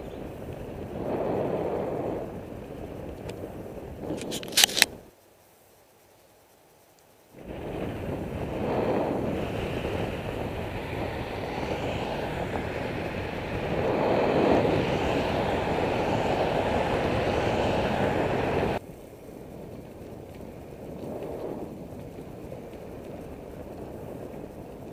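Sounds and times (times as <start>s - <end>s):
wind rushing over microphone: 0.0s - 5.1s, 7.4s - 24.9s
road noise: 7.4s - 24.9s.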